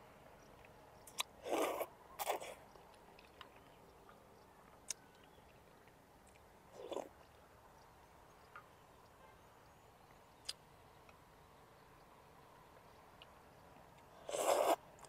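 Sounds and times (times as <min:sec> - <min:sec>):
mouth eating sound: 0:01.1 - 0:03.4, 0:14.2 - 0:14.8.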